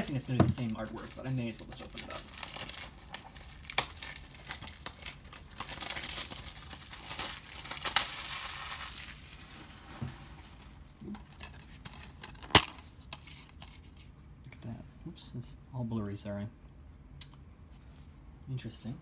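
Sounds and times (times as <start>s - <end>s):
plastic wrap tearing and crinkling: 0.0s - 9.8s.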